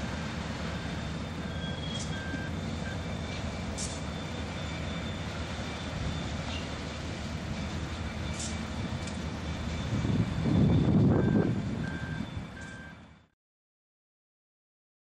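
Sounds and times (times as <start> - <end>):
diesel locomotive rumbling: 0.0 - 13.4.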